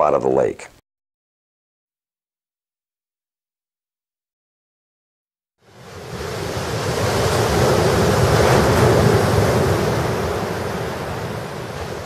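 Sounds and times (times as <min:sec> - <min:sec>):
waves washing: 0:05.6 - 0:12.0.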